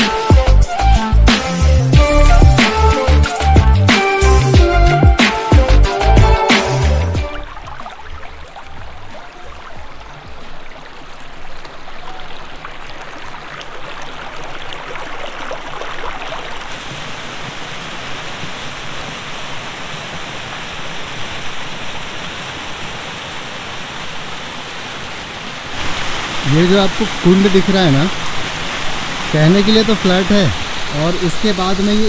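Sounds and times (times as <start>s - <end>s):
stream splashing over rocks: 7.2s - 32.0s
small waterfall pouring into pool: 7.4s - 32.0s.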